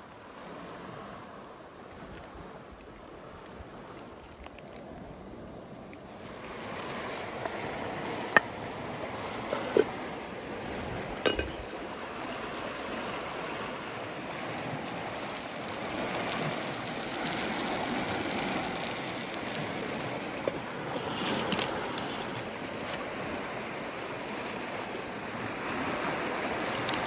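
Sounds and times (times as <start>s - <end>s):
stream water running: 0.0s - 27.0s
sharp clinks and knocks: 11.2s - 11.8s.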